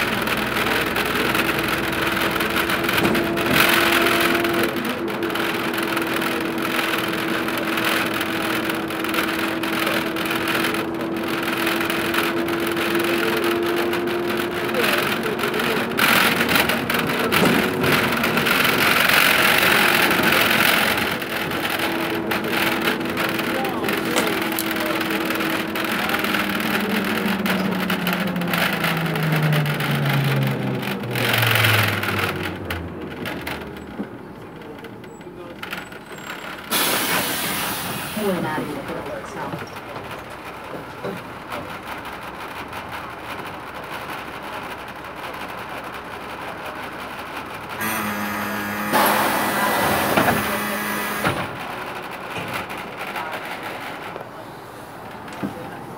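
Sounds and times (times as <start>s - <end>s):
bus diesel engine whine: 0.0s - 55.9s
road and tyre noise: 0.0s - 55.9s
road and wind noise hiss: 52.2s - 55.9s.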